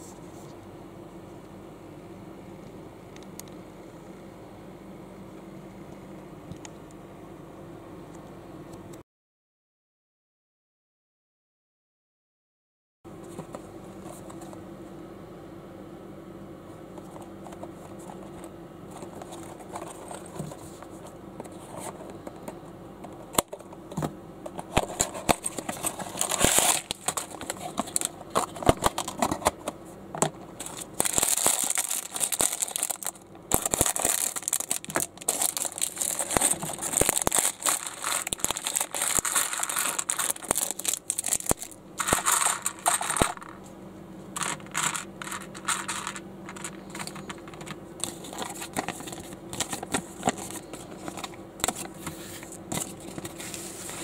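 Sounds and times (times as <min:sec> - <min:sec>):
plastic packaging crinkling: 0:24.7 - 0:29.6, 0:30.6 - 0:43.6, 0:44.4 - 0:51.8
plastic bricks clicking and rattling: 0:30.6 - 0:43.6, 0:44.4 - 0:51.2.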